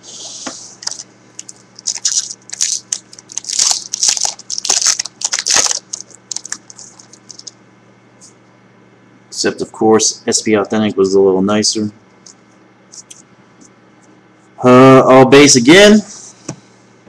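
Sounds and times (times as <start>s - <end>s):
foil wrapper crinkling: 0.8s - 7.6s.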